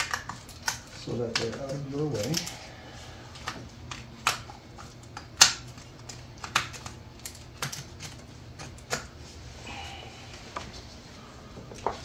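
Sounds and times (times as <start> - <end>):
connectors clicking and tapping: 0.0 - 2.6, 3.4 - 9.1.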